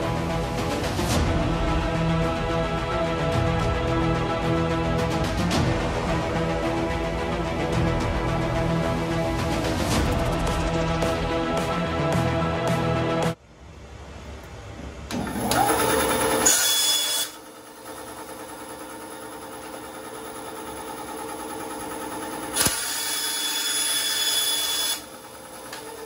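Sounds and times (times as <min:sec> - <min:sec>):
bandsaw whining: 0:15.2 - 0:17.4, 0:22.5 - 0:26.0
bandsaw blade cutting plastic: 0:16.4 - 0:17.4.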